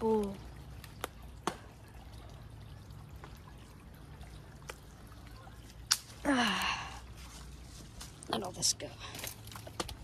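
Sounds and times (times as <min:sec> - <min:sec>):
dry twigs snapping: 0:05.8 - 0:06.2.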